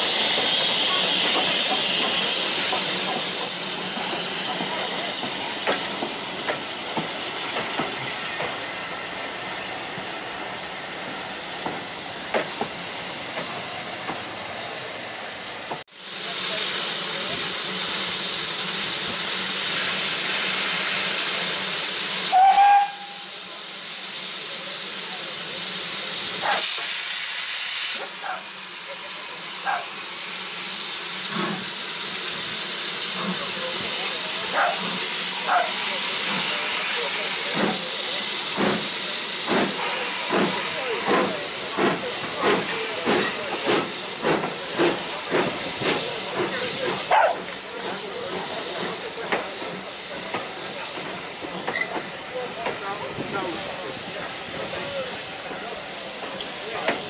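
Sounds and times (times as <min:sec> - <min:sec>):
steam locomotive hissing: 0:00.0 - 0:57.0
steam whistle toot: 0:22.3 - 0:23.4.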